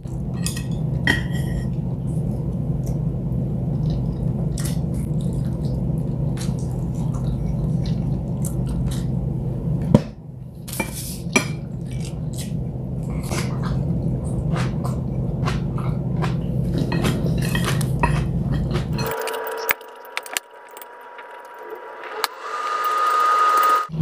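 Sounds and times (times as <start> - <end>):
low hum: 0.0 - 24.0
wet chewing: 3.7 - 9.3, 11.7 - 20.4
high tone rising in pitch: 19.0 - 24.0.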